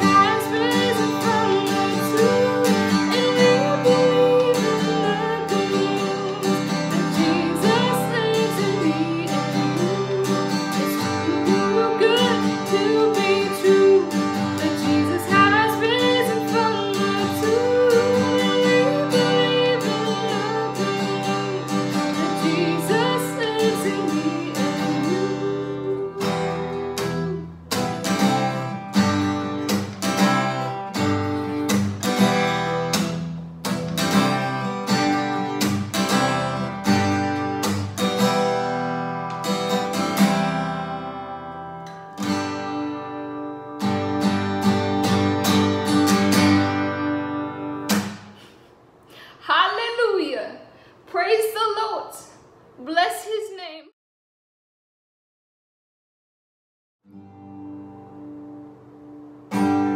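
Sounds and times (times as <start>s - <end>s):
woman singing: 0.0s - 27.5s
acoustic guitar strumming: 0.0s - 48.8s, 57.1s - 59.9s.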